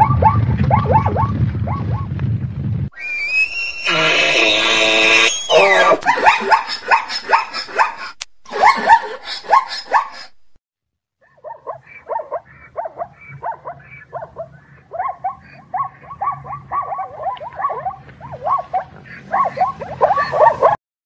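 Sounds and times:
zebra yelping barks: 3.8s - 10.4s, 11.2s - 20.8s.

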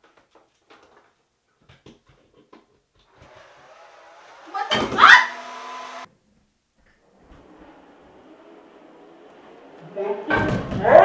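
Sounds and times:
hair dryer running: 3.1s - 6.1s.

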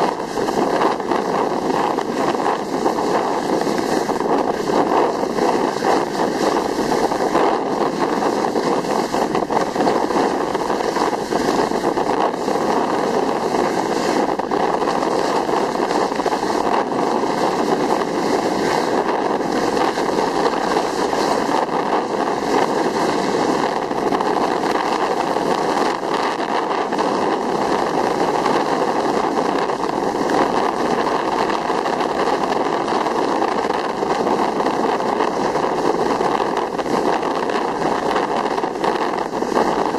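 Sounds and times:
skis hissing and scraping on snow: 0.0s - 39.9s
wind buffeting microphone: 0.0s - 39.9s.

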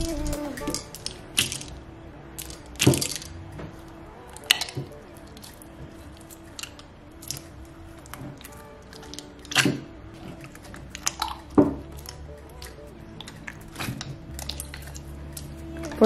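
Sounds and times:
hands squishing slime: 4.3s - 16.0s.

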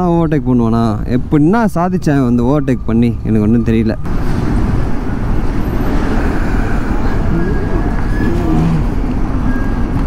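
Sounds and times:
road noise: 0.0s - 10.0s
surrounding traffic: 0.0s - 10.0s.

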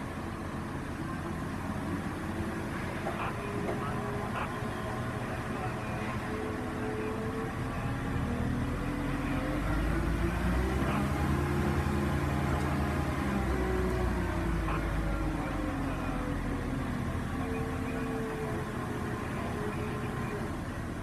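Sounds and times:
diesel crane engine revving: 0.0s - 21.0s.

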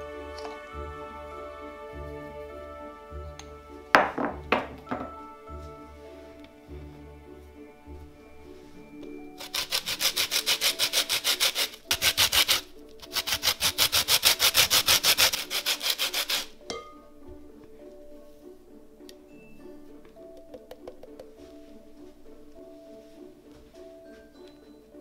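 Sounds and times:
soft background music: 0.0s - 25.0s
lemon scraping on grater: 9.4s - 16.5s.

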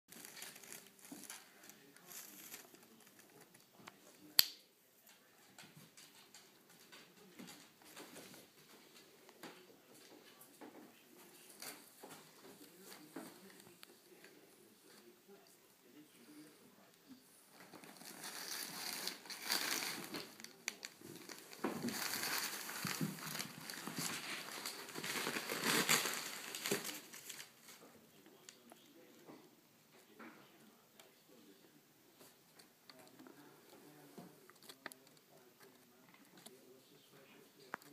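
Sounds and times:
cardboard and paper rustling: 0.1s - 3.6s, 17.6s - 27.8s.

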